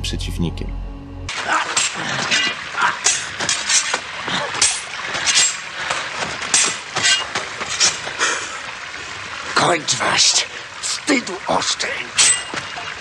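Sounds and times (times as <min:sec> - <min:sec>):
sabres clashing: 0:01.3 - 0:08.1, 0:12.2 - 0:12.6.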